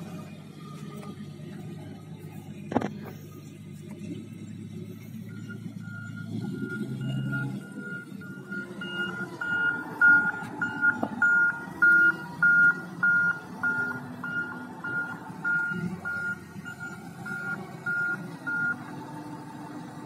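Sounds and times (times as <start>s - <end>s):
diesel engine running: 0.0s - 20.0s
reversing alarm beeping: 5.2s - 18.8s.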